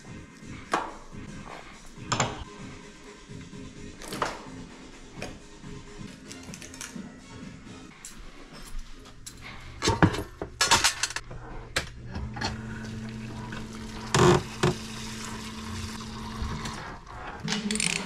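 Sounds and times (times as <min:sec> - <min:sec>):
metal parts clattering into tray: 0:09.9 - 0:11.2
running liquid: 0:12.4 - 0:17.1.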